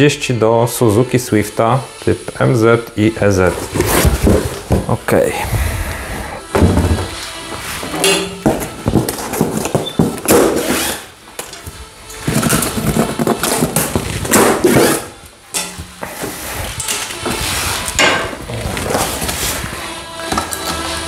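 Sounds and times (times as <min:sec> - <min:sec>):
background music: 0:00.0 - 0:21.0
packing straps scraping on cardboard box: 0:03.5 - 0:04.7, 0:07.4 - 0:11.2, 0:12.2 - 0:15.2, 0:16.0 - 0:19.9.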